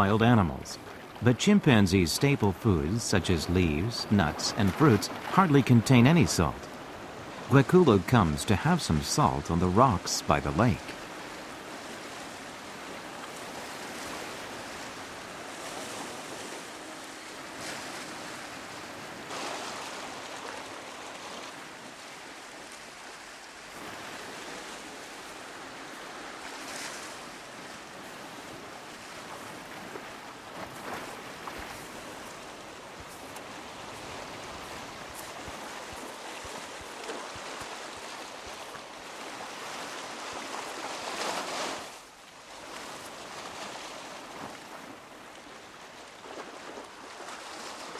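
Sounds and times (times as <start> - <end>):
lake water washing on rocks: 0.8 - 47.9.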